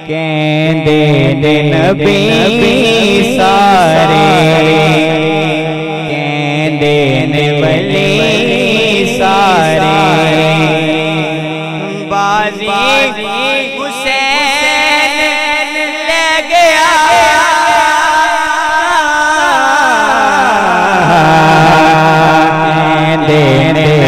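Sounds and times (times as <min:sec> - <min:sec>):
man singing into a microphone: 0:00.0 - 0:24.0.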